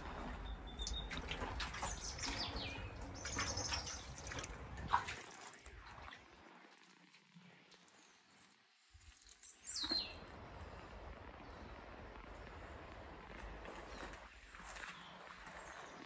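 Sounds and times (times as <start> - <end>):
small birds chirping: 0.0 - 4.6, 7.8 - 16.0
low rumble: 0.0 - 6.1, 10.1 - 15.8.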